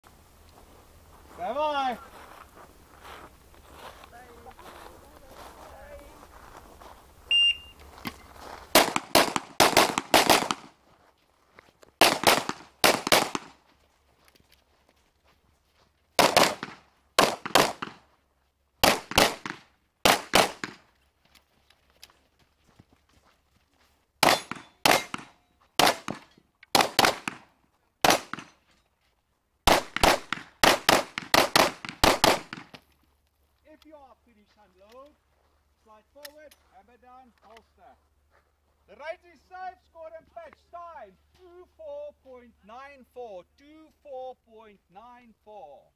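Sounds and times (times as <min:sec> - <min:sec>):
shot timer beep: 0:07.3 - 0:07.8
pistol shots: 0:08.8 - 0:10.7, 0:12.0 - 0:13.6, 0:16.2 - 0:18.0, 0:18.8 - 0:20.8, 0:24.2 - 0:28.6, 0:29.7 - 0:32.8.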